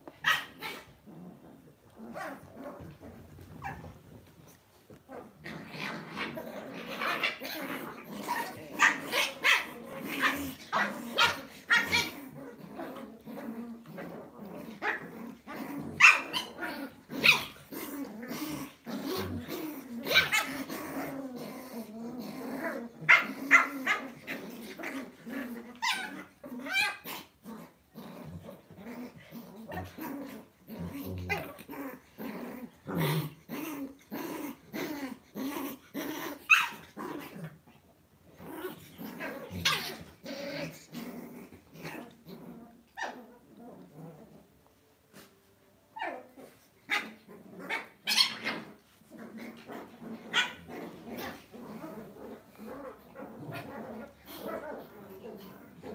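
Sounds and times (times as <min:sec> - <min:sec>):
dogs growling: 0:00.0 - 0:45.4, 0:46.0 - 0:55.9
dogs yipping and barking: 0:08.2 - 0:12.2, 0:16.0 - 0:16.6, 0:17.2 - 0:17.7, 0:20.1 - 0:20.7, 0:25.8 - 0:27.0, 0:36.4 - 0:37.0, 0:46.9 - 0:48.7, 0:50.3 - 0:50.7.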